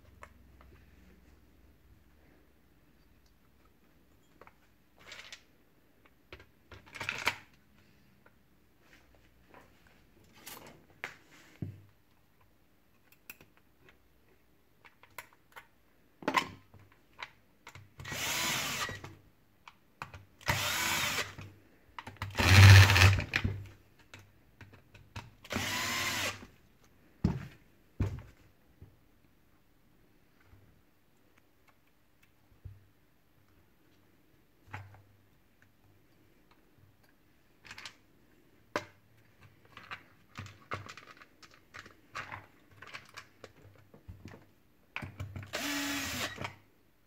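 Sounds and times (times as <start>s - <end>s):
cordless drill running: 18.1s - 19.0s, 20.4s - 21.4s, 22.4s - 23.2s, 25.5s - 26.4s, 45.5s - 46.4s
clicks of parts and tools handled: 36.5s - 38.0s.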